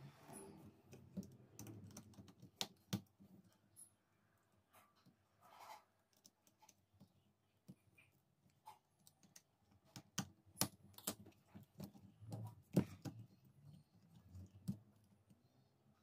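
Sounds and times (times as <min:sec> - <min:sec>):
plastic parts clicking and tapping: 0:00.9 - 0:03.9.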